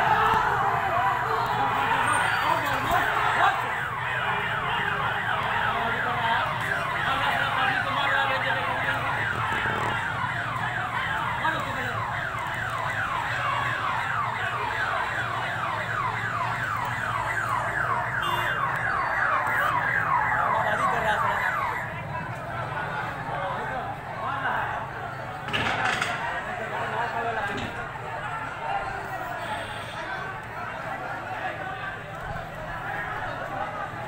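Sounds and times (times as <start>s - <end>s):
electronic siren yelping: 0.0s - 22.1s.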